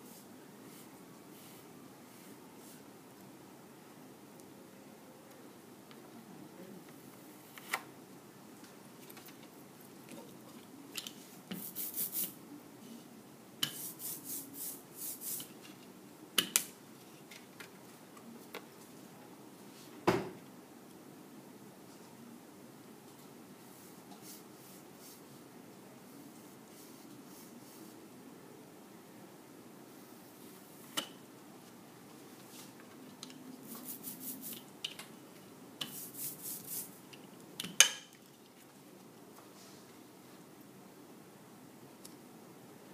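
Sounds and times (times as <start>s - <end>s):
ink roller hissing strokes: 11.5s - 12.4s, 13.6s - 15.5s, 33.6s - 34.7s, 35.8s - 37.0s.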